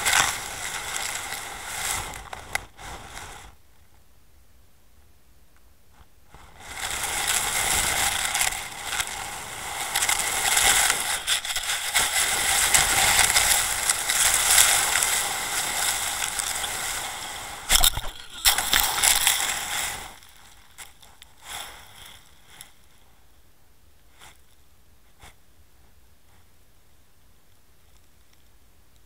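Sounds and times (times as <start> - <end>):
camera dragged across gravel seabed: 0.0 - 3.6, 6.4 - 22.8.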